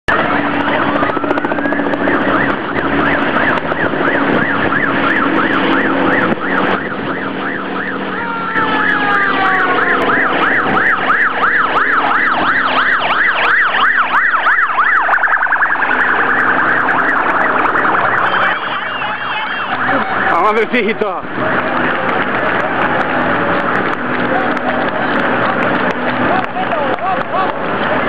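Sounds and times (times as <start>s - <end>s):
slowly falling siren tone: 0.1s - 21.0s
siren yelping: 0.1s - 28.0s.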